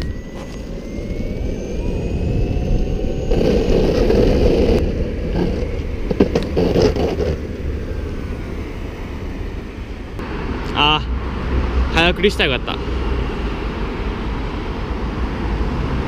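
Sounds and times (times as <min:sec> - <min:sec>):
longboard wheels rolling over asphalt: 0:00.0 - 0:10.2.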